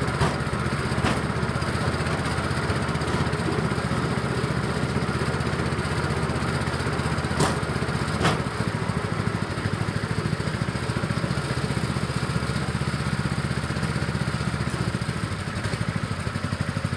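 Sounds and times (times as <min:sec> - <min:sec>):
small engine running: 0:00.0 - 0:16.9
sharp knocks: 0:01.0 - 0:01.3, 0:07.4 - 0:07.6, 0:08.2 - 0:08.5.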